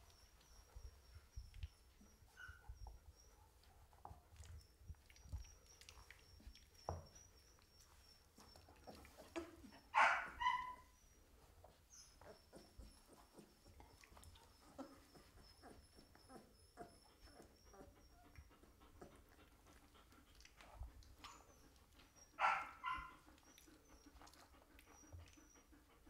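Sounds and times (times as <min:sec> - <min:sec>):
puppies squeaking: 0:00.0 - 0:26.0
puppy whimpering cry: 0:07.9 - 0:19.3.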